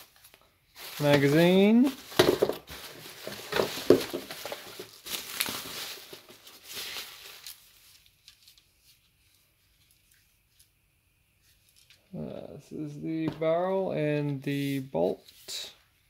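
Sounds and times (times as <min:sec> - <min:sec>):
bubble wrap crinkling: 0:00.0 - 0:10.8.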